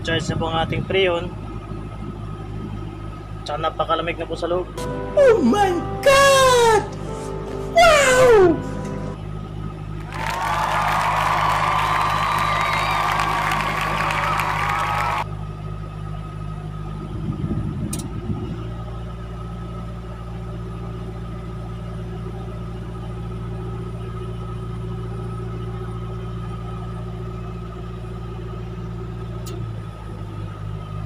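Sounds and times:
vehicle engine idling: 0:00.0 - 0:31.0
air conditioning hum: 0:09.9 - 0:15.2.

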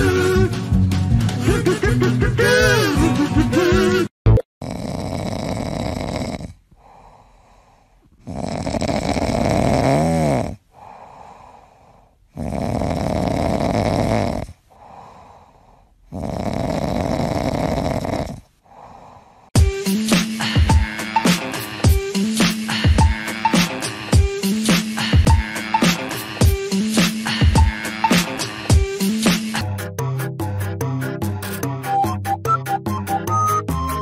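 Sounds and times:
cat snoring: 0:04.6 - 0:19.6
cat breathing: 0:06.7 - 0:09.6, 0:10.6 - 0:13.4, 0:14.3 - 0:19.6.

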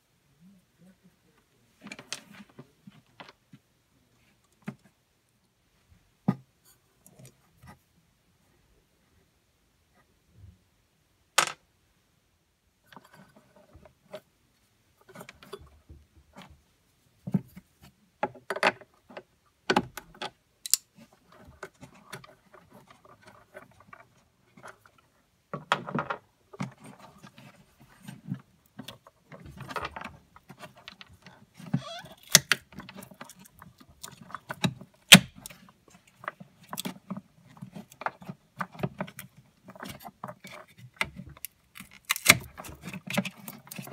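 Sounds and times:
hands handling wiring and connectors: 0:01.7 - 0:05.0, 0:17.2 - 0:43.9.

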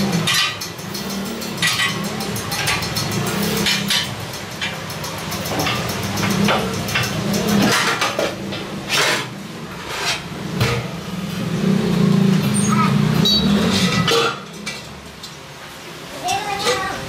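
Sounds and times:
metallic clanks and knocks: 0:00.0 - 0:09.4, 0:13.2 - 0:15.4.

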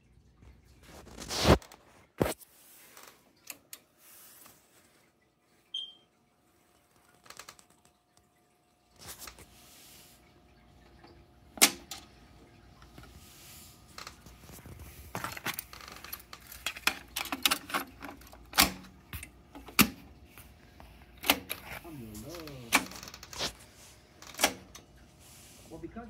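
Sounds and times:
cassette deck clicks and clunks: 0:11.6 - 0:12.0, 0:16.3 - 0:18.9, 0:21.2 - 0:21.6
cassette door sharp clacks: 0:11.6 - 0:12.0, 0:18.5 - 0:18.8.

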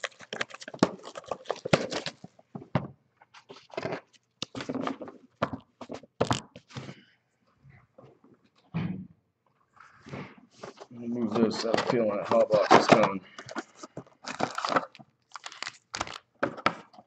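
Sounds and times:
rustling card packs: 0:00.0 - 0:02.7, 0:03.3 - 0:07.0, 0:10.4 - 0:17.0.

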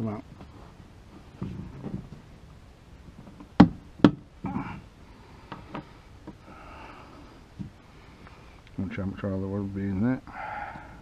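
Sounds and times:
man breathing heavily: 0:04.4 - 0:08.6, 0:10.3 - 0:11.0.

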